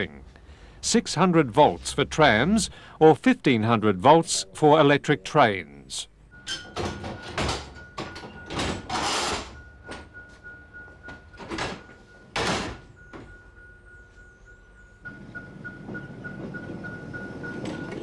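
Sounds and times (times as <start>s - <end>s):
signal box levers clunking and scraping: 6.4s - 10.2s, 10.9s - 13.6s.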